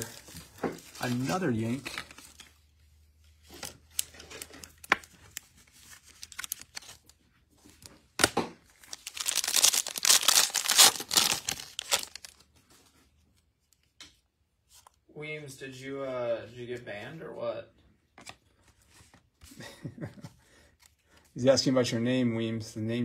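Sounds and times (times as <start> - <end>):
packaging crinkling and tearing: 3.5 - 12.5.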